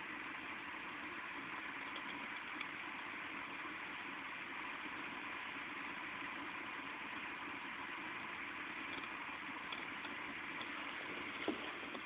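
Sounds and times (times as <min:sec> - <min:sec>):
faint ticks: 0:01.8 - 0:02.8, 0:08.9 - 0:12.0.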